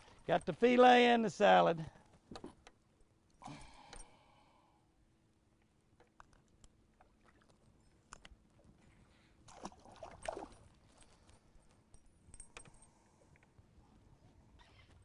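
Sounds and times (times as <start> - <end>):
fish splashing in water: 9.5 - 10.6.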